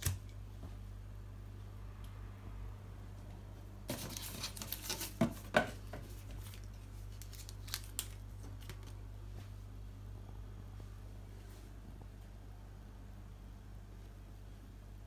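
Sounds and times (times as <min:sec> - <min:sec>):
faint low hum: 0:00.0 - 0:15.0
paper stickers crinkling: 0:03.9 - 0:09.0.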